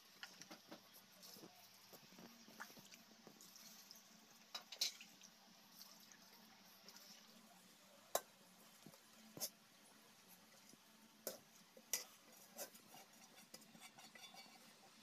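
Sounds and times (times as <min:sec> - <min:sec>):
rice scraped from metal bowl: 0:11.9 - 0:14.8.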